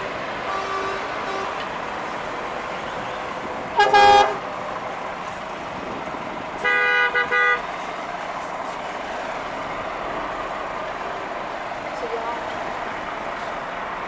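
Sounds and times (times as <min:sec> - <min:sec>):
truck horn blasts: 0:00.5 - 0:01.7, 0:03.7 - 0:04.4, 0:06.6 - 0:07.7.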